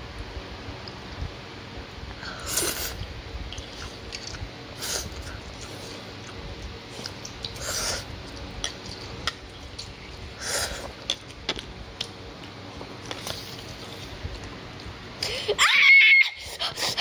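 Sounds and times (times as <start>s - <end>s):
chewing: 5.1s - 14.9s.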